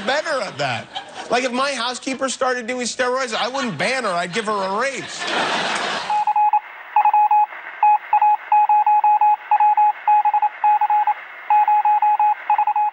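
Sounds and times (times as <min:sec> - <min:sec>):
rapid electronic beeps: 0:06.1 - 0:12.9.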